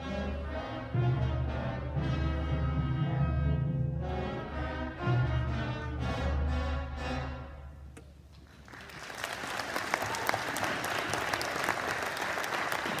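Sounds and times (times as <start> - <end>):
audience applauding: 8.3 - 13.0.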